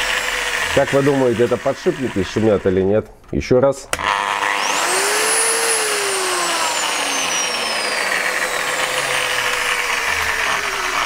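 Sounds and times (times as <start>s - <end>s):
angle grinder motor running: 0.0s - 2.9s, 3.9s - 11.0s.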